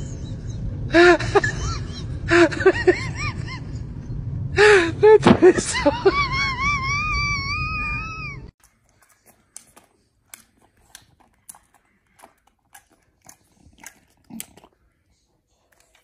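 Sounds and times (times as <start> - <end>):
high-pitched wavering cry: 6.3 - 8.5.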